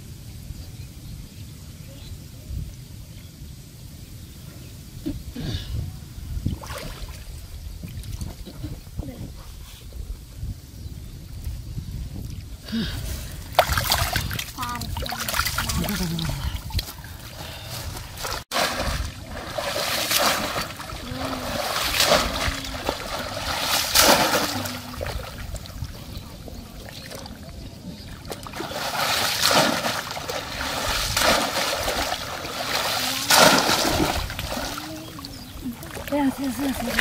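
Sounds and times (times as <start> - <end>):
water splashing and sloshing: 6.4 - 8.8, 13.2 - 37.0.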